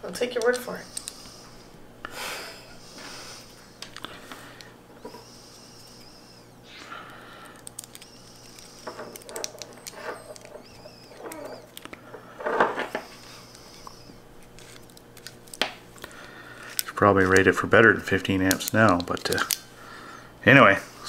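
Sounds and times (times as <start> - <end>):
plastic and metal clicking and scraping: 7.6 - 12.0, 18.5 - 19.6.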